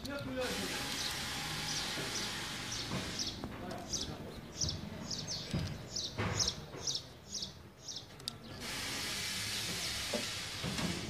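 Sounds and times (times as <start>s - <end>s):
steady high hiss: 0.2s - 3.4s, 8.6s - 11.0s
bird chirping: 0.9s - 8.6s.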